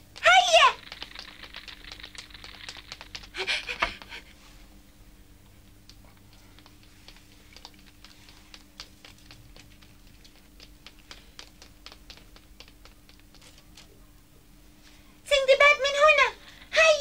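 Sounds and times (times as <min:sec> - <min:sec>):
quick tapping footsteps on stone: 0:00.0 - 0:04.3, 0:06.4 - 0:13.7
low steady hum: 0:00.0 - 0:17.0.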